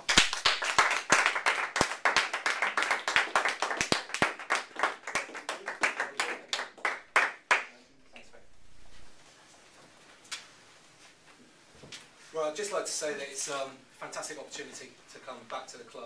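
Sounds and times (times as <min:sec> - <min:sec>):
small audience clapping: 0:00.0 - 0:08.3.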